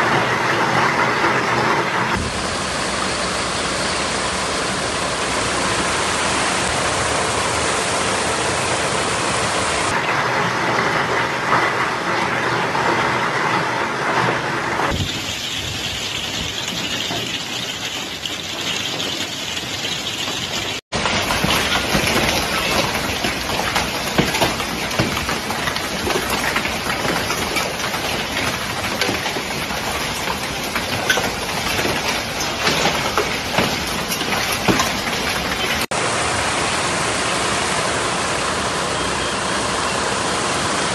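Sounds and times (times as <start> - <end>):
hail and rain falling: 0.1 - 12.9, 14.9 - 36.8
hailstones striking hard surfaces: 14.9 - 35.9.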